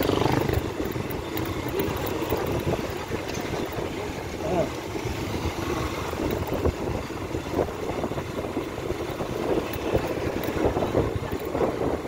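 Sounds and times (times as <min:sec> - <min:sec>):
motorbike engine: 0:00.0 - 0:12.0
wind buffeting microphone: 0:00.0 - 0:12.0.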